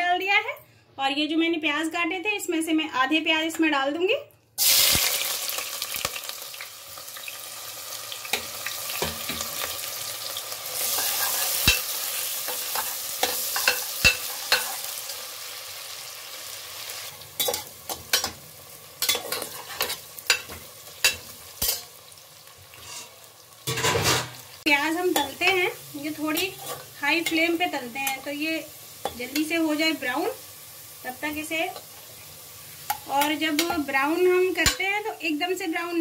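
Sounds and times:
onions sizzling in hot oil: 4.6s - 36.0s
metal spoon scraping and clacking pot: 10.8s - 11.9s, 17.4s - 18.4s, 19.0s - 21.9s, 22.8s - 24.4s, 26.4s - 27.4s.

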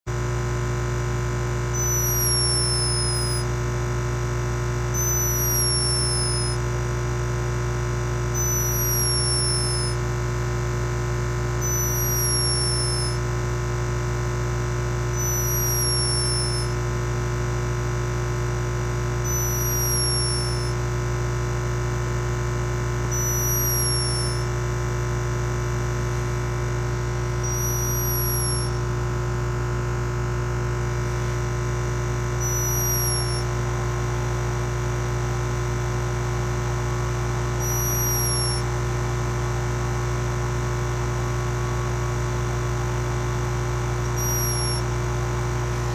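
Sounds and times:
laboratory equipment humming: 0.1s - 45.9s
high falling squeak: 1.8s - 3.4s, 5.0s - 6.6s, 8.4s - 10.0s, 11.6s - 13.2s, 15.2s - 16.7s, 19.3s - 20.7s, 23.2s - 24.4s, 27.5s - 28.8s, 32.4s - 33.5s, 37.6s - 38.7s, 44.1s - 44.9s.

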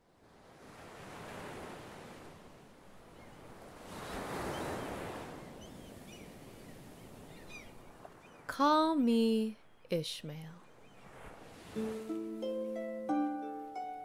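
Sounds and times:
ocean surf washing in: 11.0s - 13.8s.

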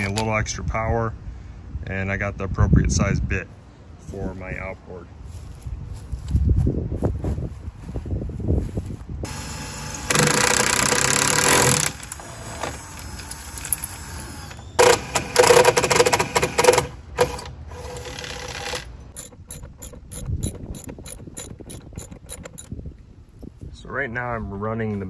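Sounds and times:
impact driver running: 9.2s - 22.8s
ratchet wrench clicking: 18.0s - 22.8s.

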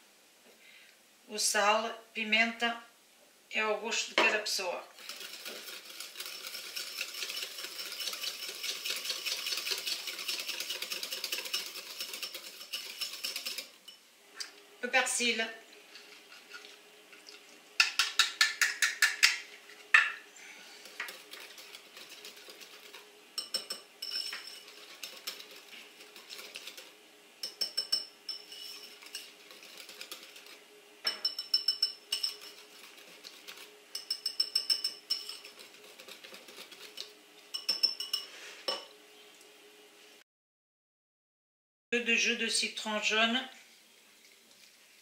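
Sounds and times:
whisk clicking against bowl: 5.0s - 13.8s, 17.8s - 19.4s, 20.9s - 38.3s
bowl ringing faintly: 27.4s - 28.9s, 31.1s - 32.5s, 33.9s - 35.4s, 37.5s - 38.9s.

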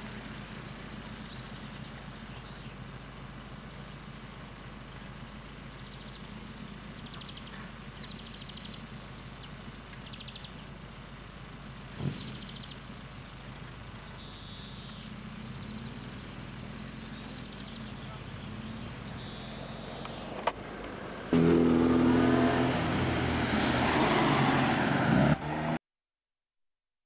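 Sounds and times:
car engine idling: 0.0s - 23.4s
small birds trilling: 0.7s - 4.2s, 4.9s - 10.9s, 12.1s - 20.5s.

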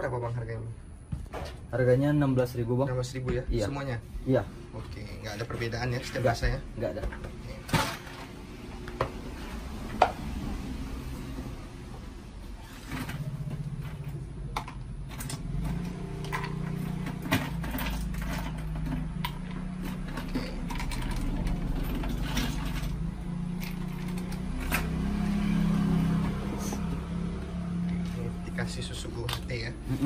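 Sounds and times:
ice cubes clinking: 17.6s - 23.0s.

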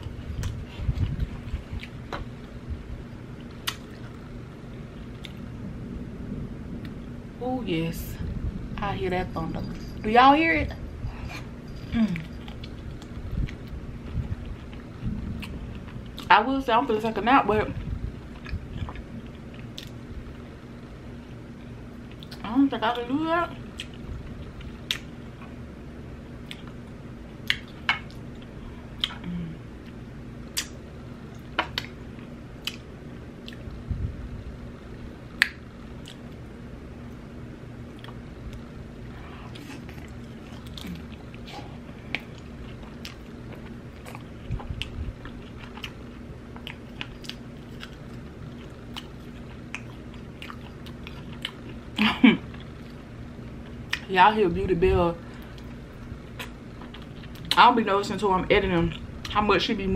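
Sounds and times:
steady low hum: 0.0s - 59.9s
chewing and biting food: 17.8s - 20.0s, 30.6s - 33.7s, 39.4s - 54.1s, 55.6s - 57.6s.

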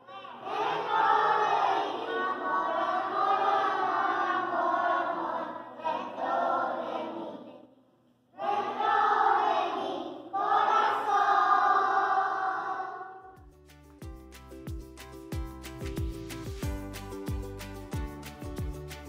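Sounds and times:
children's choir singing: 0.0s - 13.4s.

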